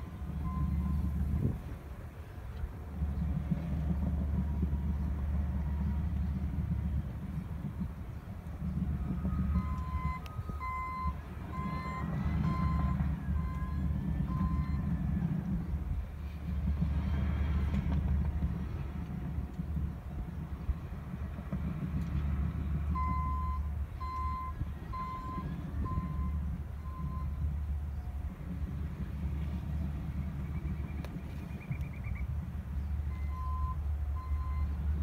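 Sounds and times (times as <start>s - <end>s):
distant diesel machines droning: 0.0s - 35.0s
backup alarm beeping: 0.4s - 1.1s, 9.6s - 14.9s, 23.0s - 27.4s, 33.1s - 34.8s.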